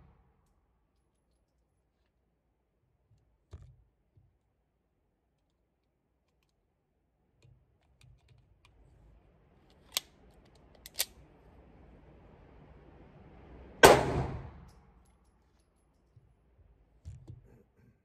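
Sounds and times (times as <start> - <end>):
pistol handling clicks: 9.8 - 11.2.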